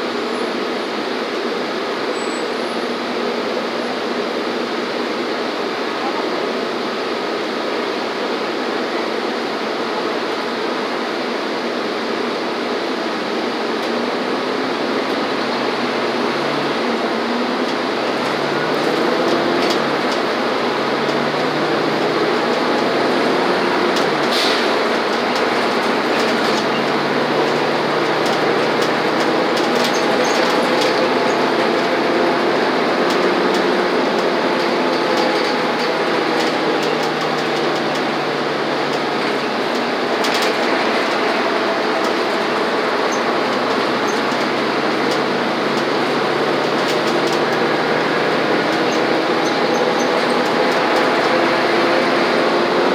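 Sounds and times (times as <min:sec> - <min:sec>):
bus engine drone: 0:00.0 - 0:52.9
road noise: 0:00.0 - 0:52.9.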